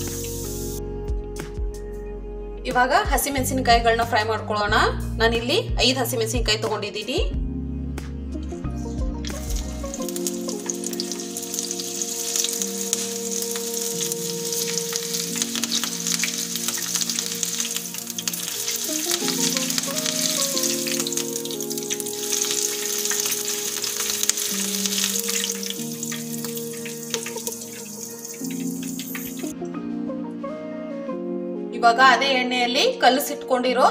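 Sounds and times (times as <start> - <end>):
chillies deep-frying in oil: 0.0 - 0.8, 9.2 - 29.5.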